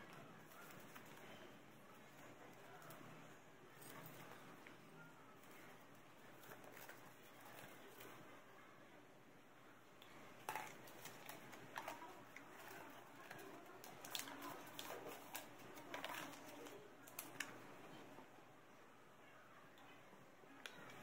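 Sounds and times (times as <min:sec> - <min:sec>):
paper rustling and crinkling: 0:10.4 - 0:17.6.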